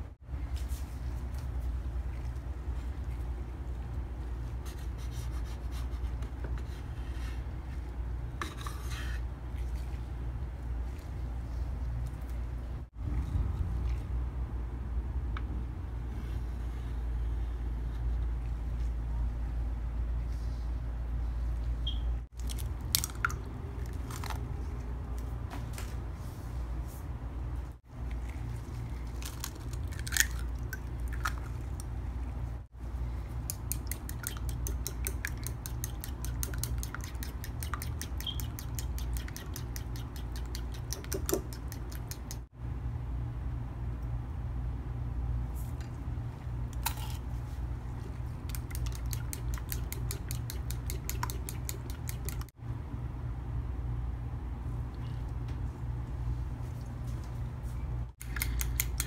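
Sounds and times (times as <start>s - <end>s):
steady low hum: 0.0s - 59.0s
spoon clicking against bowl: 58.2s - 59.0s.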